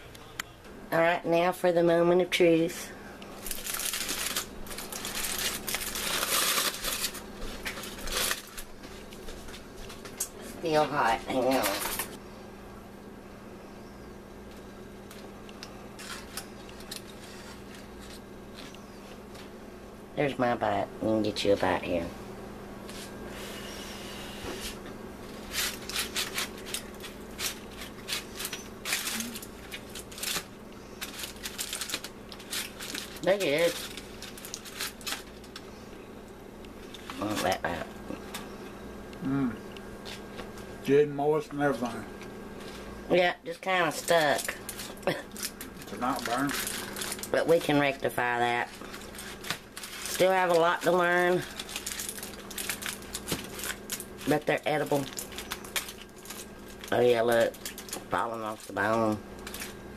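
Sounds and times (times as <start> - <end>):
aluminium foil crinkling: 3.4 - 10.3, 14.5 - 19.5, 25.2 - 35.7, 36.8 - 38.4, 41.7 - 59.8.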